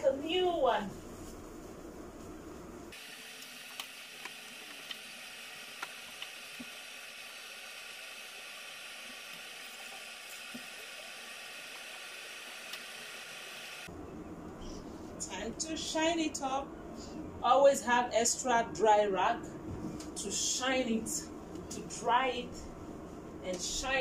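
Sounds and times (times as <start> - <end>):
steady hiss: 1.1 - 13.9.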